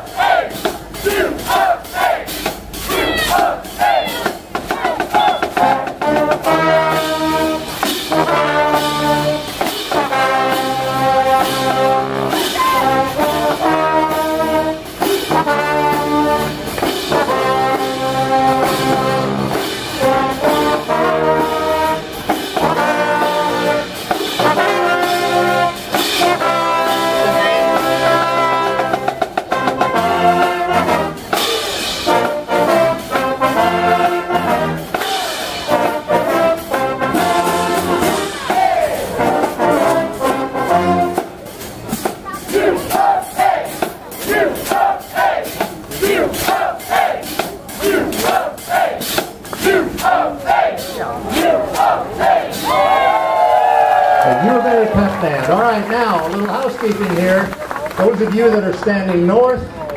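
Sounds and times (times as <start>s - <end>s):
brass band playing: 0.0s - 59.5s.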